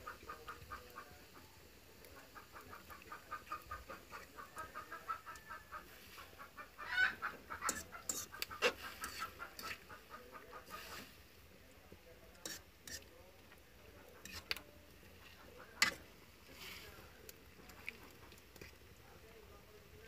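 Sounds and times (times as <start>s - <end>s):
bird clucking: 0.0s - 1.5s, 2.2s - 11.1s.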